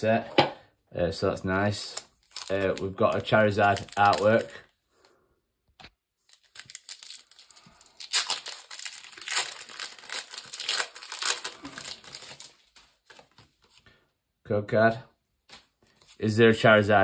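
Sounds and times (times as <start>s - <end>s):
foil wrapper tearing and crinkling: 1.8s - 4.6s, 6.2s - 13.4s.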